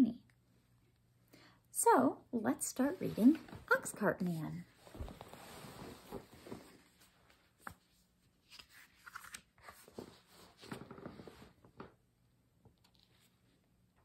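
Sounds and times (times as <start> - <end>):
book pages rustling: 4.8 - 11.8.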